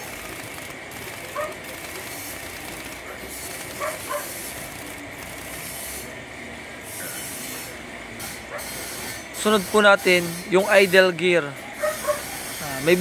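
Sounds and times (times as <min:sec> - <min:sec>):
impact wrench hissing: 0:03.3 - 0:06.1, 0:06.8 - 0:11.1.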